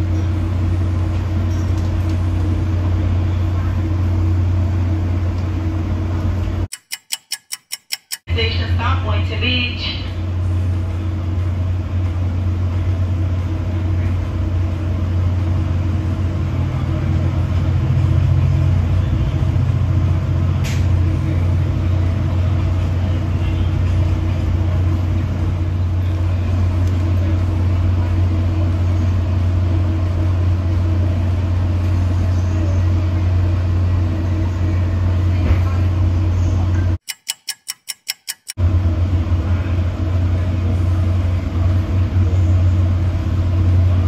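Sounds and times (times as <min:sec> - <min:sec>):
train drone inside coach: 0:00.0 - 0:44.0
sharp click: 0:06.7 - 0:08.3, 0:37.0 - 0:38.6.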